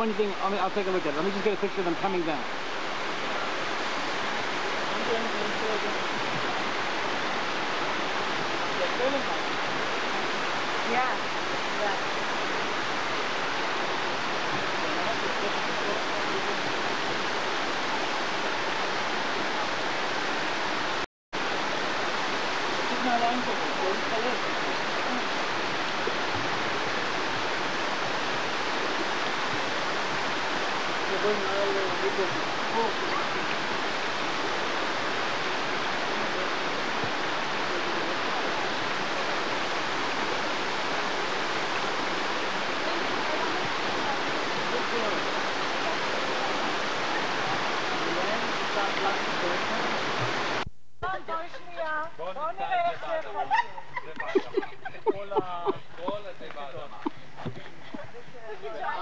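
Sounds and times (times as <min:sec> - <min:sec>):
small waterfall pouring into pool: 0:00.0 - 0:50.6.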